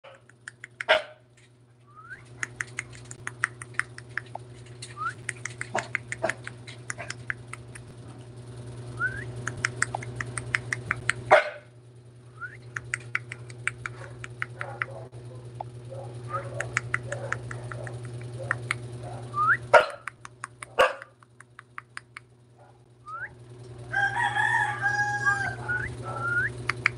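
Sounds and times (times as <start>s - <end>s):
dogs barking: 0.1s - 1.3s, 5.3s - 7.8s, 9.6s - 11.8s, 12.8s - 21.2s, 22.5s - 22.9s, 25.1s - 26.4s
low hum: 0.1s - 26.9s
dogs whining: 24.9s - 26.6s.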